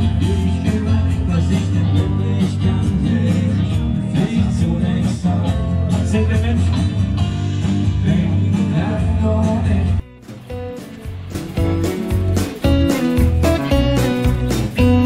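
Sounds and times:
person singing: 0:00.0 - 0:06.8
guitar: 0:00.0 - 0:15.0
heavy bass: 0:00.0 - 0:15.0.

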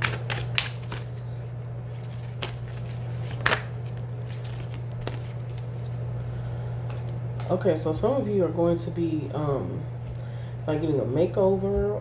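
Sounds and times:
cards being shuffled: 0:00.0 - 0:01.2, 0:01.8 - 0:06.0
cards snapping: 0:00.0 - 0:01.2, 0:01.9 - 0:05.9
steady low hum: 0:00.0 - 0:12.0.

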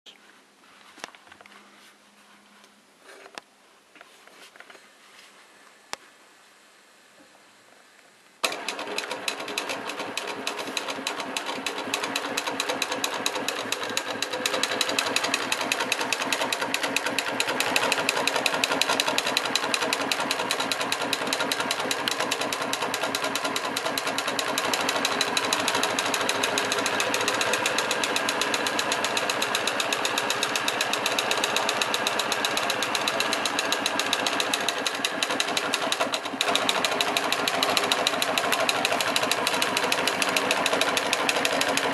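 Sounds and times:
sewing machine stitching: 0:08.4 - 0:41.9.

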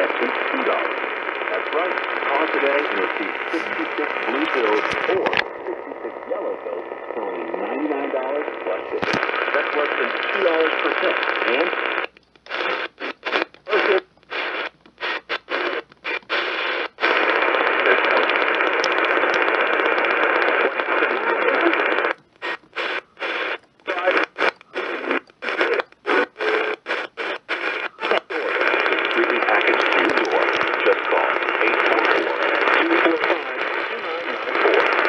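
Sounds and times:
radio static hiss: 0:00.0 - 0:35.0.

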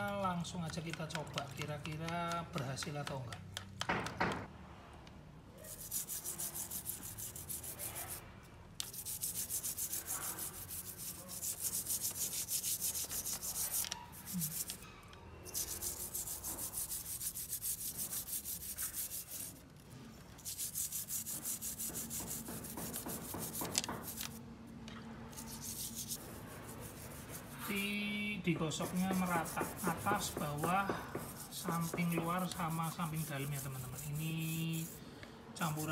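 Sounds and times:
toothbrush scrubbing a metal chain: 0:05.7 - 0:08.2, 0:08.8 - 0:14.8, 0:15.5 - 0:19.6, 0:20.4 - 0:24.4, 0:25.3 - 0:27.8, 0:28.8 - 0:35.0, 0:35.6 - 0:35.9.

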